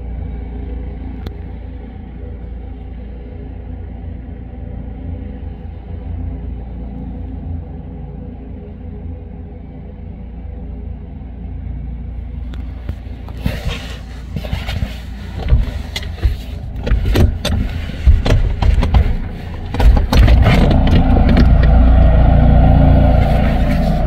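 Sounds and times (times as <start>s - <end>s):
helicopter rumbling: 12.6s - 24.0s.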